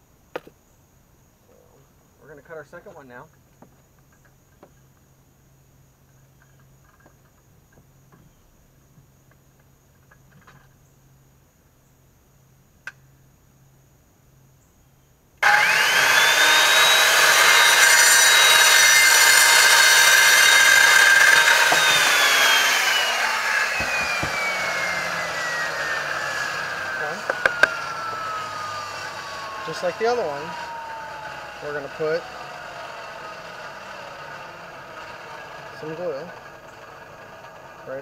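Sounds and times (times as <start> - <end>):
saw blade cutting pipe: 15.4 - 37.6
circular saw whine: 15.4 - 38.0.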